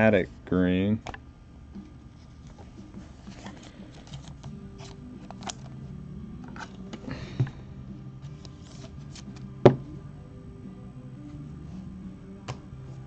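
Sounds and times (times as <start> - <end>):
trading cards sliding and clicking: 1.8 - 5.8, 8.2 - 9.5.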